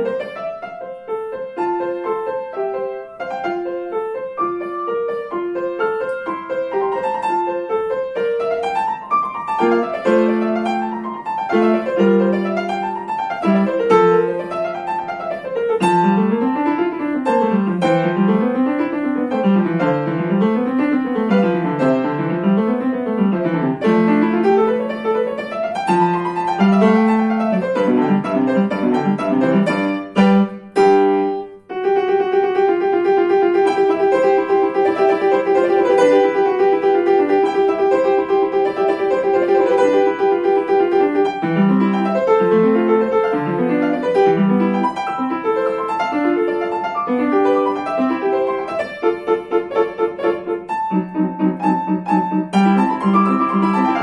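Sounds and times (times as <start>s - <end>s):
upright piano classical piece: 0.0s - 54.0s.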